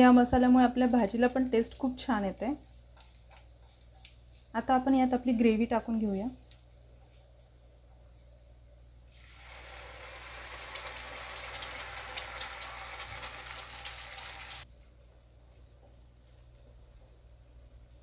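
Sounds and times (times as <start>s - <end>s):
paste sizzling in frying pan: 9.0s - 14.7s.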